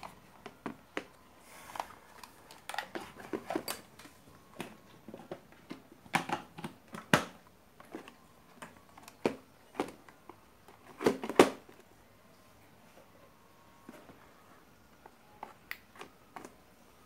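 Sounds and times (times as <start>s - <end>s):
plastic case clicks and knocks: 4.6s - 7.4s.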